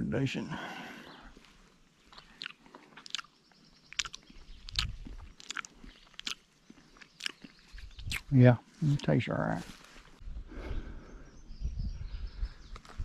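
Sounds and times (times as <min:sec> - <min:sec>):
person chewing berries: 0:01.4 - 0:09.1.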